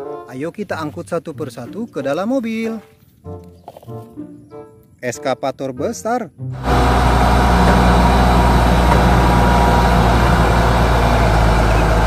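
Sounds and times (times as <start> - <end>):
diesel crane engine running: 6.6 - 12.0.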